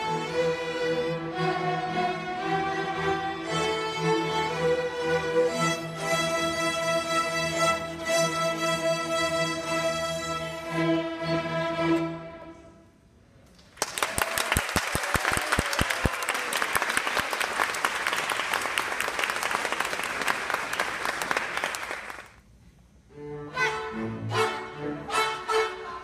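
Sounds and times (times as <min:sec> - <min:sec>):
string orchestra playing: 0:00.0 - 0:12.9, 0:23.0 - 0:26.0
audience applause: 0:13.7 - 0:22.3.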